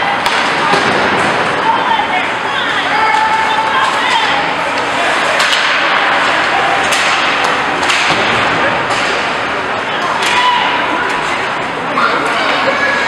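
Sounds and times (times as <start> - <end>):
spectator chatter: 0.0 - 13.0
hockey sticks and puck clacking: 0.1 - 1.6, 3.0 - 11.5.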